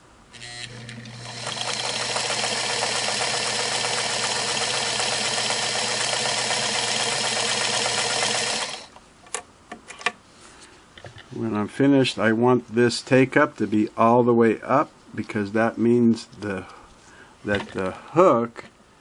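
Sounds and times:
sewing machine stitching: 0.4 - 8.9.

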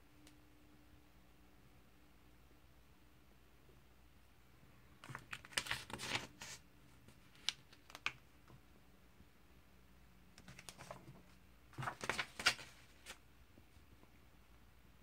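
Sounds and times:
comic book pages rustling: 5.0 - 8.2, 10.4 - 13.2.

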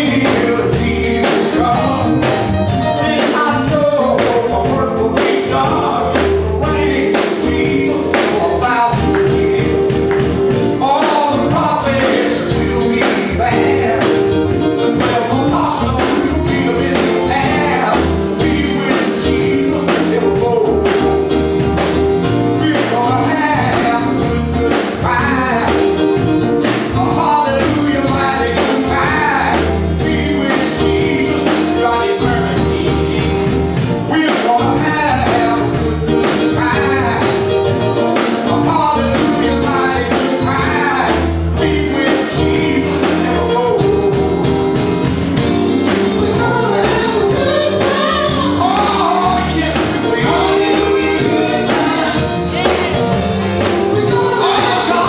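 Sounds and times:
electric bass guitar: 0.0 - 55.0
group singing gospel: 0.0 - 55.0
keyboard: 0.0 - 55.0
steady beat: 0.0 - 55.0.

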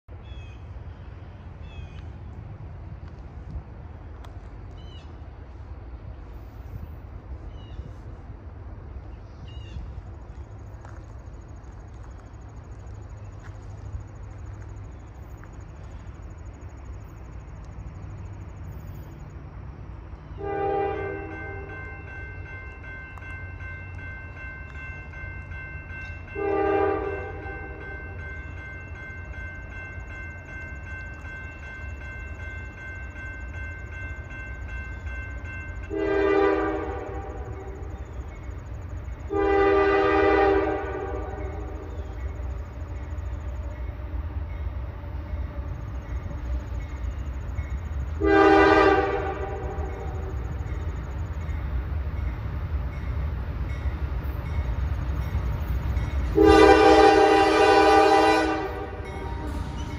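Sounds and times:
locomotive horn blasts: 20.4 - 22.1, 26.3 - 28.0, 35.8 - 37.9, 39.2 - 41.9, 42.7 - 47.0, 48.2 - 50.5, 56.2 - 59.8.

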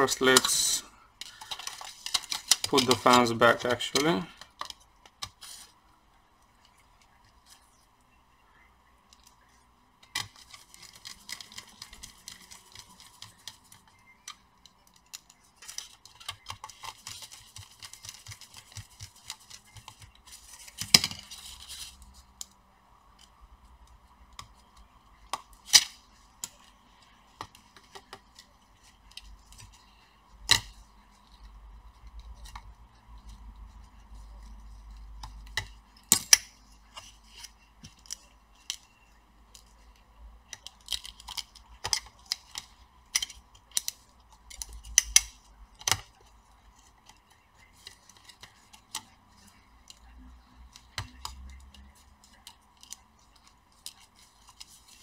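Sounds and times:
faint steady hum: 0.0 - 55.0
clicks and knocks of plastic parts: 1.2 - 5.4.

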